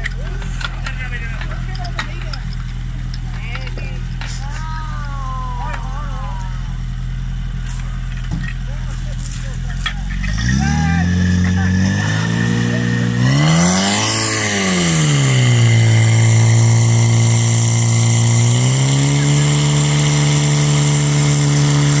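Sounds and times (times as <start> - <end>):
fire pump engine running: 0.0 - 22.0.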